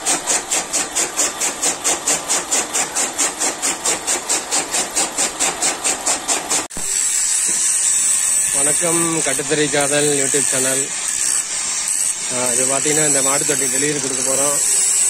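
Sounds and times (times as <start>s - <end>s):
chaff cutter chopping: 0.0s - 7.8s.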